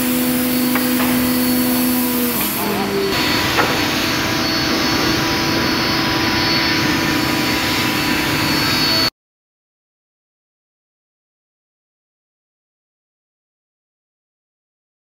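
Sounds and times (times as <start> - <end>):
woodworking machinery running: 0.0 - 9.1.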